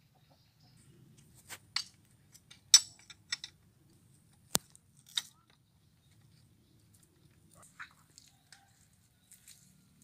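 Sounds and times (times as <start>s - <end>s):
small metal parts clinking: 1.8s - 3.6s.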